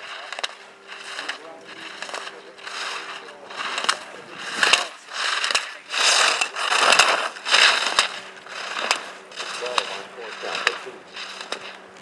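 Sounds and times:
skis scraping across snow: 0.0s - 12.0s
sharp clacks: 0.1s - 12.0s.

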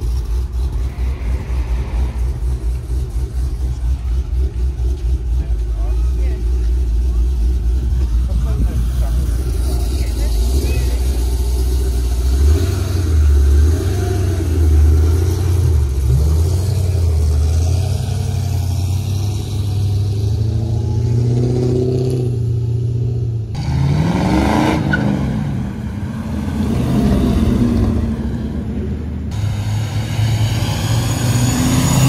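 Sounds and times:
car engines rumbling: 0.0s - 32.0s
engine revving: 7.5s - 22.8s, 23.5s - 28.6s, 29.3s - 32.0s.

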